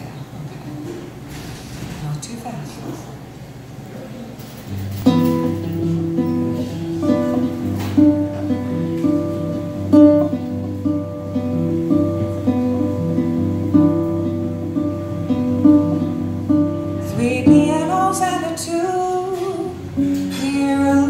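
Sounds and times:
solo acoustic guitar picking: 4.6 - 21.0.

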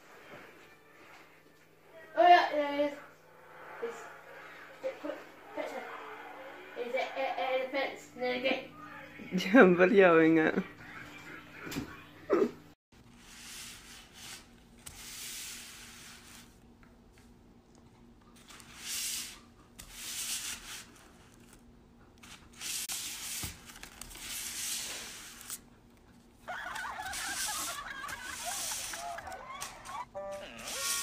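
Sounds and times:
food wrappers rustling: 20.8 - 31.0.

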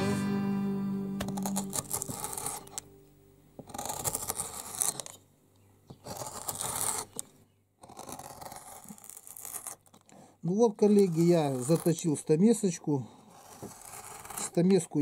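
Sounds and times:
chisel scraping on sharpening stone: 1.2 - 2.9, 3.6 - 5.2, 6.0 - 7.2, 7.8 - 10.0, 10.8 - 12.0, 13.2 - 14.8.

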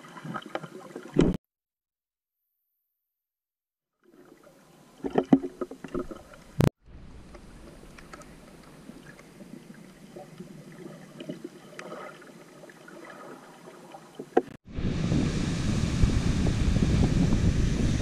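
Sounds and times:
muffled underwater clicks and crackles: 0.3 - 1.4, 5.0 - 12.2
wind on microphone: 14.6 - 18.0.

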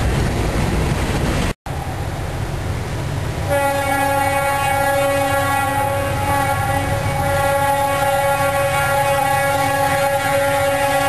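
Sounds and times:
locomotive air horn: 3.5 - 11.0.

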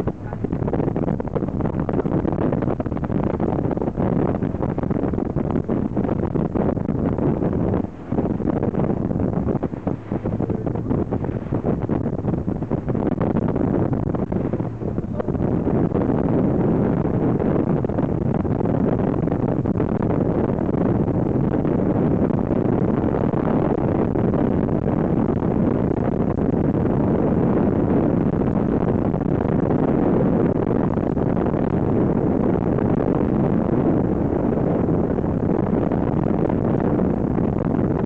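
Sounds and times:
outboard motor: 0.0 - 38.0
wind buffeting microphone: 0.0 - 38.0.

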